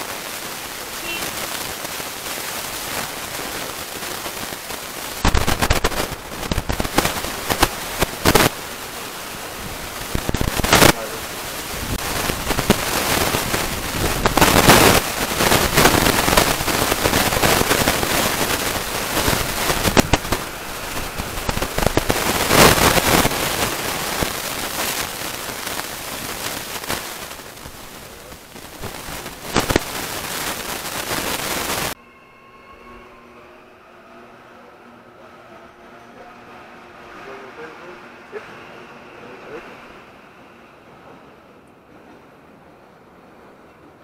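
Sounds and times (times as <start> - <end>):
passenger train passing: 0.0 - 10.3, 10.9 - 28.6, 31.9 - 44.0
wind buffeting microphone: 5.2 - 29.7.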